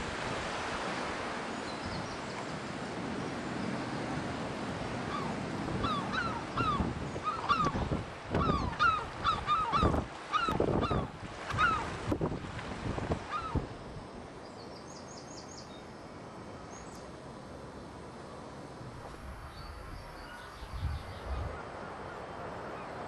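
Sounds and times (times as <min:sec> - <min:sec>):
surf: 0:00.0 - 0:14.4
wind: 0:00.0 - 0:23.0
gulls calling: 0:05.0 - 0:12.0, 0:13.2 - 0:13.7.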